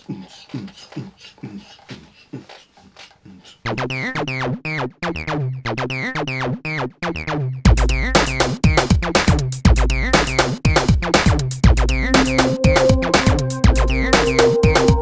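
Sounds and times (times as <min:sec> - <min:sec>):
heavy bass line: 0:11.6 - 0:15.0
electronic synthesizer music: 0:11.8 - 0:15.0.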